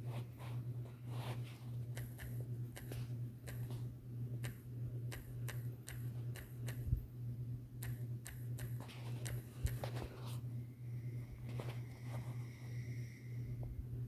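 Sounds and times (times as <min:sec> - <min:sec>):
steady low hum: 0:00.0 - 0:14.0
phone keyboard typing ticks: 0:02.0 - 0:03.7, 0:04.4 - 0:06.9, 0:07.8 - 0:09.8.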